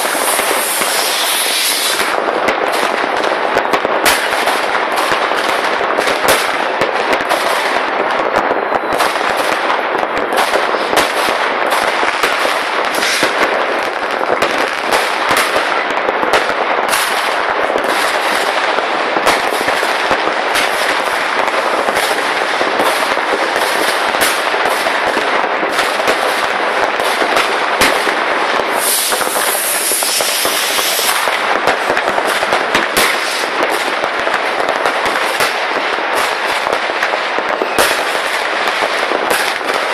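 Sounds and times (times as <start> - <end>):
loud high hiss: 0.0 - 2.1, 28.7 - 31.3
firecrackers crackling: 0.0 - 39.9
fireworks bangs: 0.0 - 39.9.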